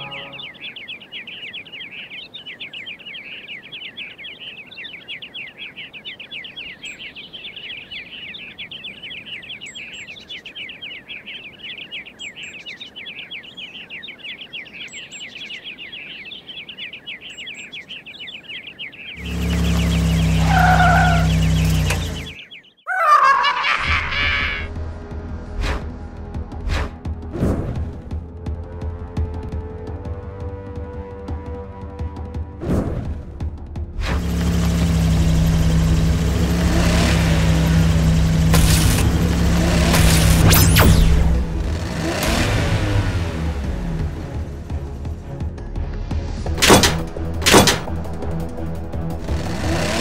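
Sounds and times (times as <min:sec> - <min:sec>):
dense rapid bird chirping: 0:00.0 - 0:24.7
loud low hum: 0:33.8 - 0:45.4, 0:46.2 - 0:50.0.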